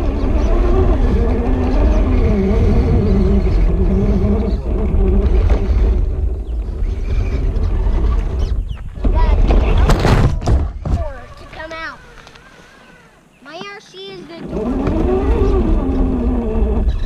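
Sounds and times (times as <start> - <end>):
electric motor whining: 0.0 - 8.8, 11.4 - 13.3, 14.3 - 17.0
heavy low rumble: 0.0 - 12.4.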